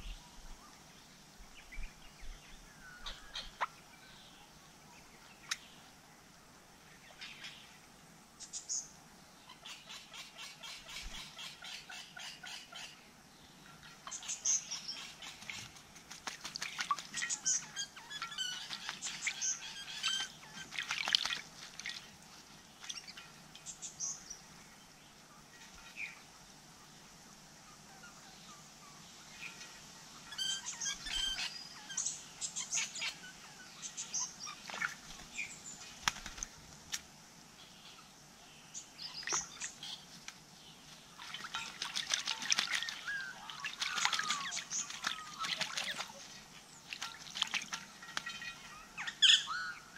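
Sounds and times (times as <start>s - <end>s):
bird calls: 1.6s - 5.9s, 8.4s - 22.2s, 22.8s - 24.5s, 27.7s - 36.6s, 37.6s - 49.9s
birds splashing in water: 13.8s - 23.6s, 34.4s - 37.0s, 39.0s - 49.8s.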